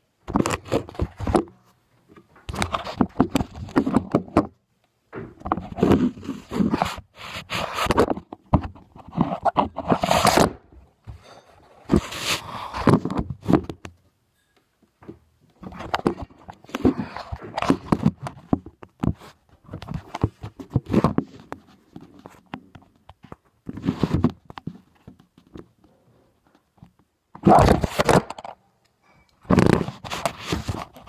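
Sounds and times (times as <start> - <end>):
fingers rubbing and knocking on phone: 2.5 - 4.5, 5.4 - 11.2, 11.8 - 13.8, 15.6 - 25.7, 29.4 - 31.0.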